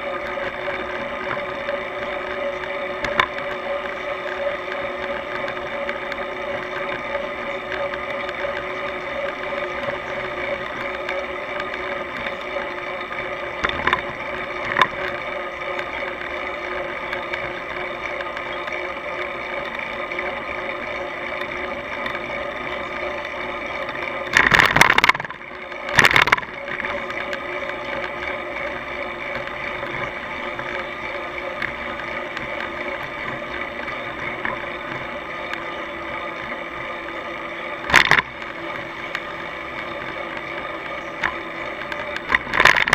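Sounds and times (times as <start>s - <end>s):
bicycle riding hum: 0.0s - 42.9s.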